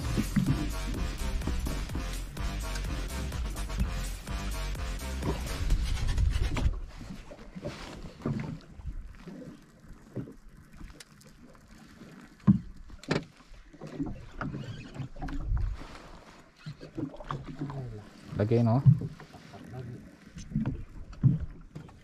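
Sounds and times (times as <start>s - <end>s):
background music: 0.0s - 6.1s
water slapping against boat hull: 12.4s - 16.0s, 16.6s - 22.0s.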